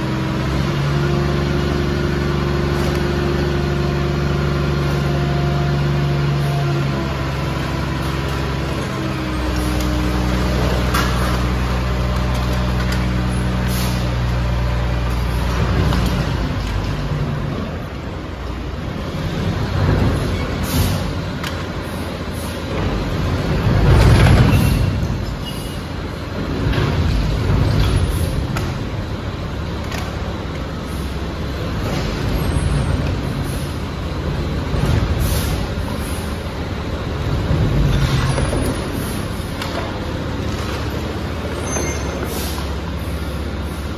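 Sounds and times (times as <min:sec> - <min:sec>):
garbage truck engine: 0:00.0 - 0:43.9
thuds and clanks: 0:26.4 - 0:29.0, 0:37.4 - 0:39.0.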